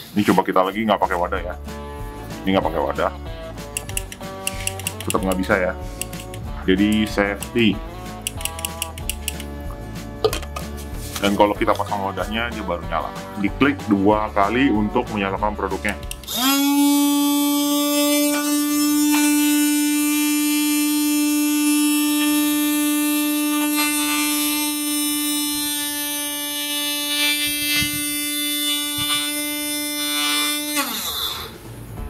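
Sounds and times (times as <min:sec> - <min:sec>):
blender motor humming: 0:16.0 - 0:31.6.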